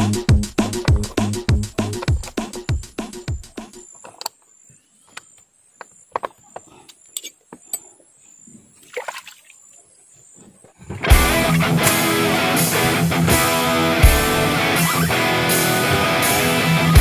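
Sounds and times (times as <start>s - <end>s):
hand splashing water: 8.8s - 9.6s.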